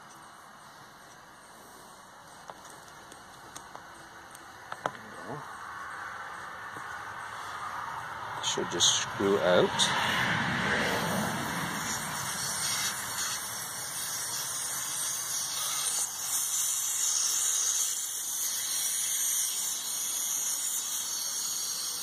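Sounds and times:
air hissing out of tyre valve: 11.7 - 22.0.

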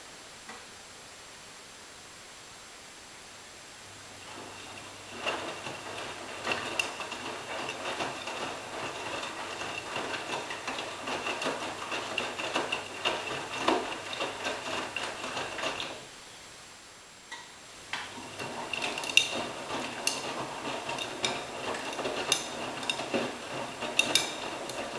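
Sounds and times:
washing machine motor whine: 3.9 - 16.2, 17.8 - 24.9
laundry sloshing in washing machine: 4.1 - 16.1, 18.0 - 24.9.

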